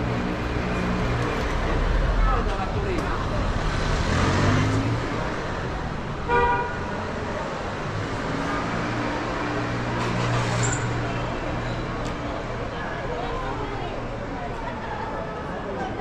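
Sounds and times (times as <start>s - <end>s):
street noise: 0.0s - 16.0s
vehicle horn toot: 6.3s - 6.8s.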